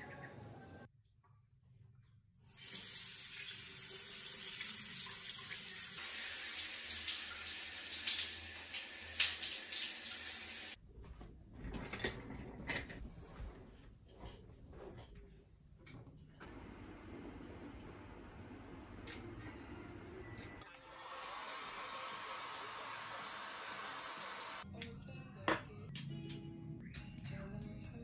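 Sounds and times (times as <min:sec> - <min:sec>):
shower running over hand: 0:02.5 - 0:10.8
tap water running into sink: 0:02.5 - 0:10.8.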